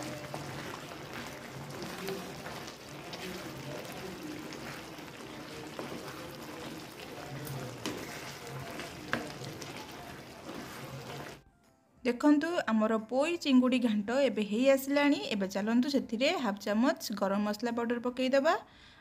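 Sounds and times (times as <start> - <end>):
curry sizzling and bubbling: 0.0 - 11.4
spatula scraping pan: 0.0 - 11.4.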